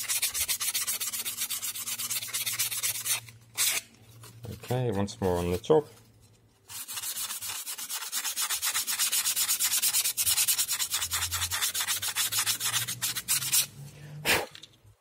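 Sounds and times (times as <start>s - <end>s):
sandpaper rubbing on foam: 0.0s - 3.8s, 6.7s - 13.7s.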